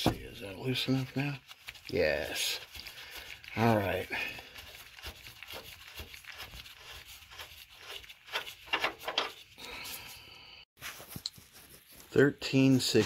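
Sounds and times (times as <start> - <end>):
gloved fingers scraping metal: 4.9 - 9.6.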